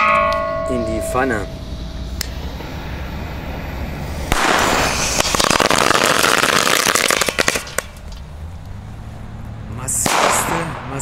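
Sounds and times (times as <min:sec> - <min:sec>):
firecrackers crackling in metal pan: 0:04.3 - 0:08.3.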